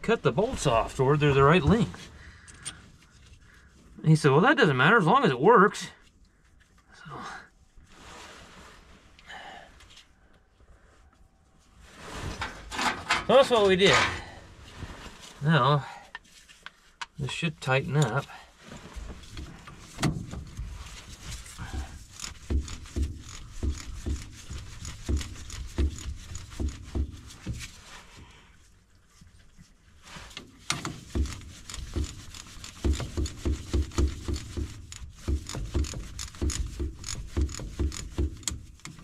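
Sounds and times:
wrench clicking on metal bolts: 30.7s - 39.0s.

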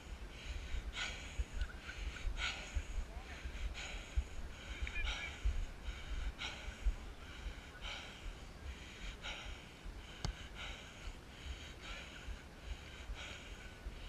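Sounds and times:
person breathing while running: 0.0s - 14.0s
wind rumbling on microphone: 0.0s - 14.0s.

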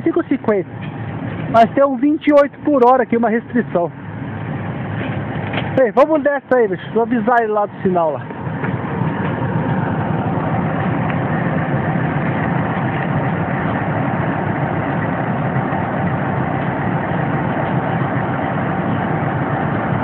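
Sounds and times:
faint constant hum: 0.0s - 20.0s
locomotive engine idling: 0.0s - 20.0s.

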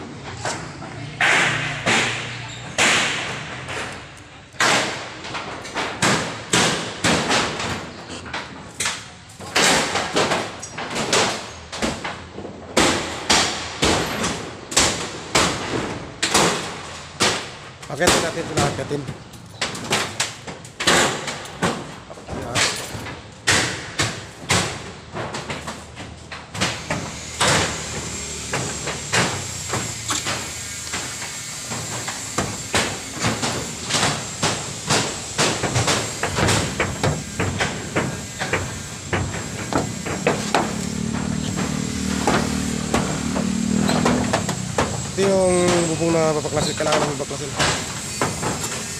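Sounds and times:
hammering on corrugated iron: 0.4s - 48.9s.

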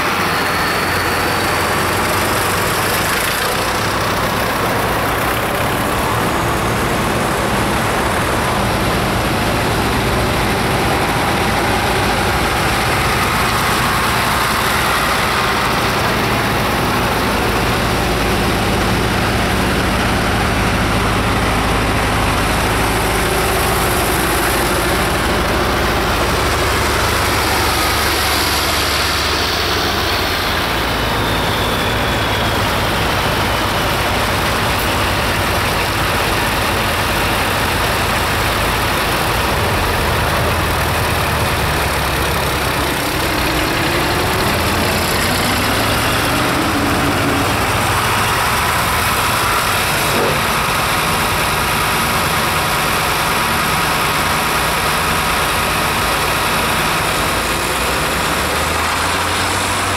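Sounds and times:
tractor engines passing: 0.0s - 59.9s.

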